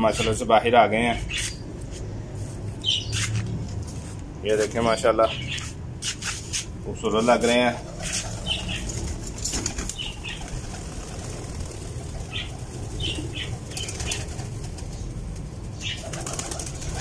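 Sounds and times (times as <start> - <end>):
pigeons flapping wings: 7.7 - 17.0.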